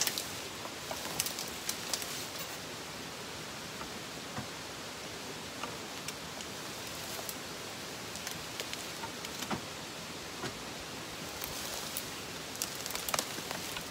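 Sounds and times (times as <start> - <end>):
twigs crackling and snapping: 0.0 - 2.7, 5.6 - 9.7, 10.4 - 13.9
tyres rolling over dry leaves: 0.0 - 4.6, 5.2 - 13.9.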